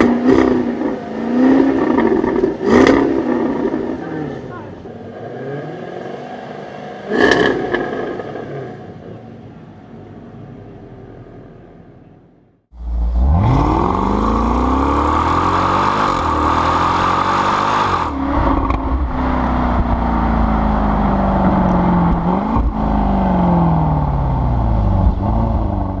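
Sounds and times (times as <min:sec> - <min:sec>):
car engine revving: 0:00.0 - 0:11.2, 0:12.7 - 0:26.0
car engine accelerating hard: 0:12.8 - 0:26.0.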